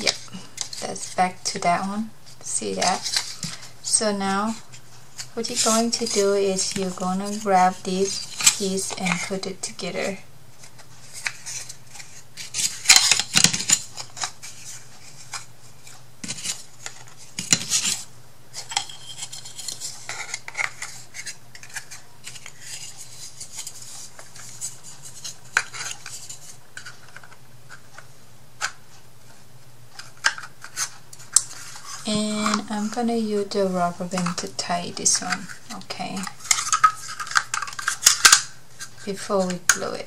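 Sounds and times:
wooden pieces clicking and scraping: 35.1s - 39.9s.

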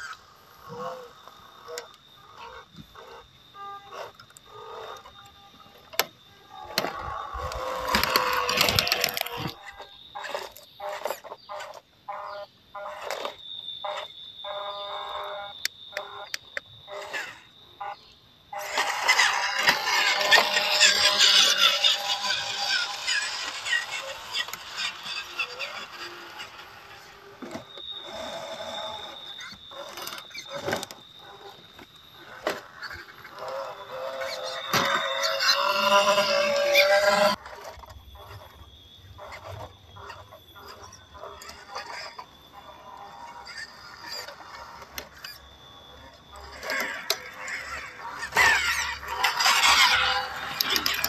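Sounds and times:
toy trucks crunching over leaves: 6.6s - 11.3s, 18.6s - 31.5s, 32.3s - 38.5s, 46.3s - 51.0s.

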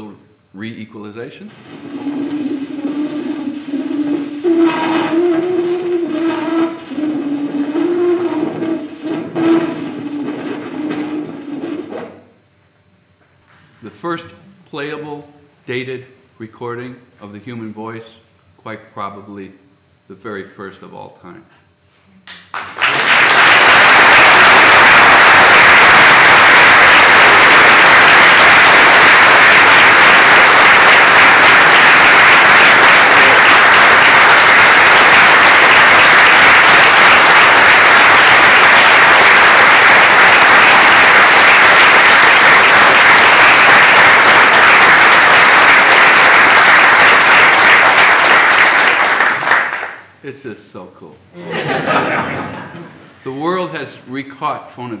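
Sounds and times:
audience applauding: 1.6s - 11.8s, 22.5s - 50.0s.

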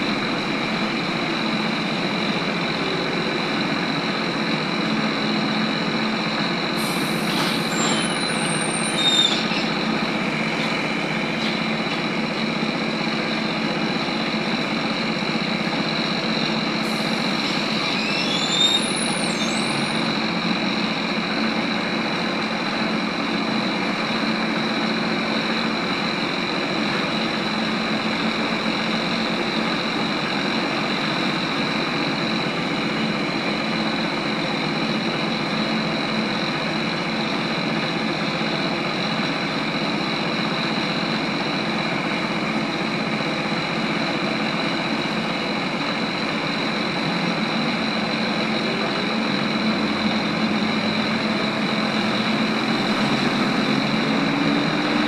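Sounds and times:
road noise: 0.0s - 55.0s
hiss with high squeaks: 6.8s - 9.8s, 16.8s - 20.1s.

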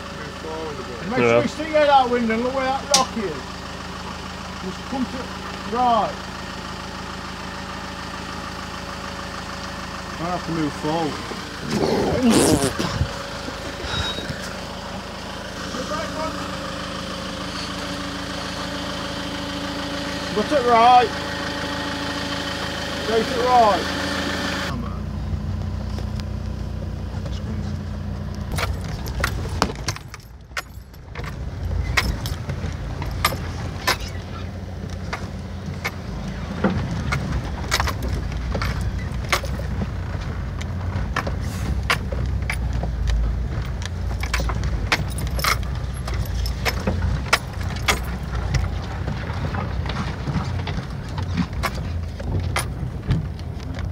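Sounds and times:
vehicle engine running low: 0.0s - 53.9s
clicks and rattles over stones: 28.4s - 53.9s.

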